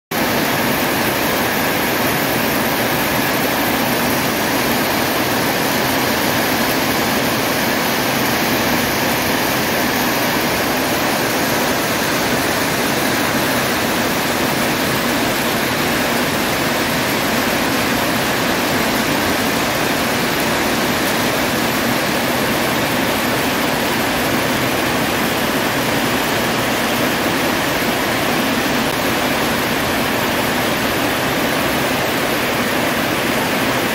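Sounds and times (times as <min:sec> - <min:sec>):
heavy rain on metal roof: 0:00.1 - 0:33.9.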